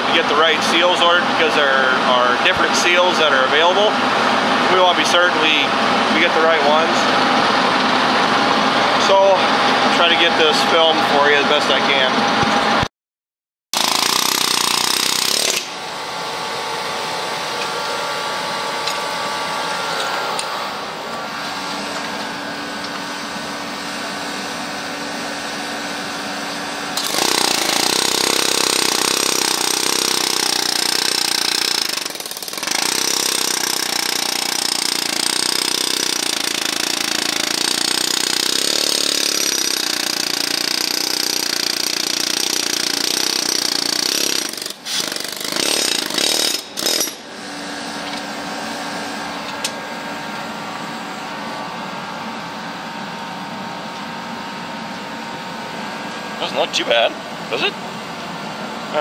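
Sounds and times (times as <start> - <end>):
machine running: 13.8 - 59.0.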